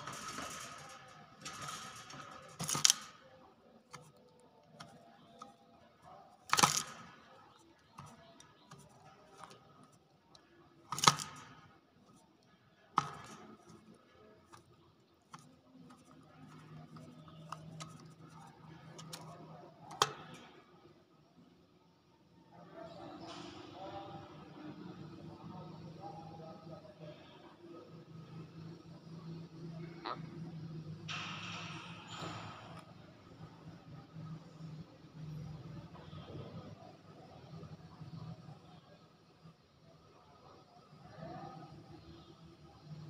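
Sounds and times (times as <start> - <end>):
bird clicks and knocks: 15.3 - 19.3.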